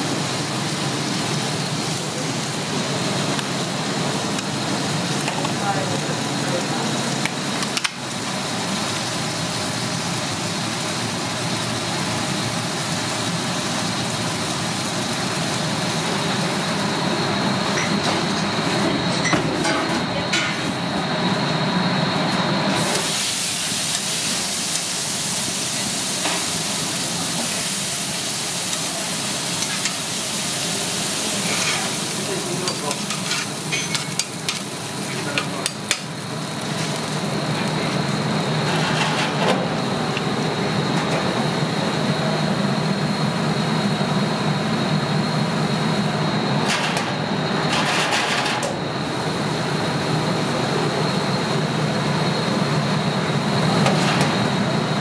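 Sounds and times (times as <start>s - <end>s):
meat sizzling: 0.0s - 18.4s, 22.7s - 38.9s
metal tongs in steel pan: 32.6s - 34.6s.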